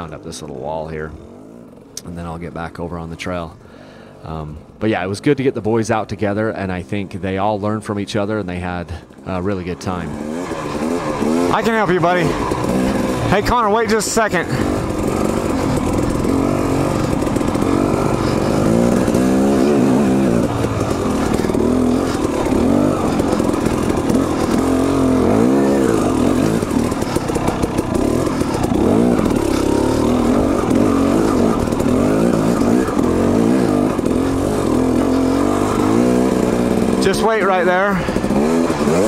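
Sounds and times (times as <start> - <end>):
dirt bike engine revving: 8.2 - 39.0.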